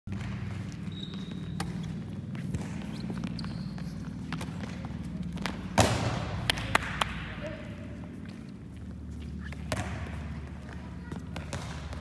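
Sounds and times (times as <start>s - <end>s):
steady low hum: 0.1s - 12.0s
short high shoe squeaks: 0.8s - 2.0s, 2.8s - 4.3s.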